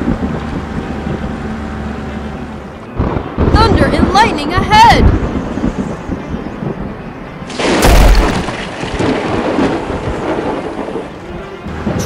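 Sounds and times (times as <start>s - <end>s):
thunder rumbling: 2.8s - 12.0s
loud thunderclap: 3.0s - 12.0s.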